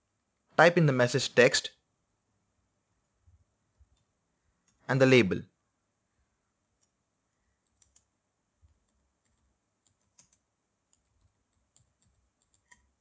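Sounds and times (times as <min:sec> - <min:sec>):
faint keyboard typing: 0:06.7 - 0:13.0.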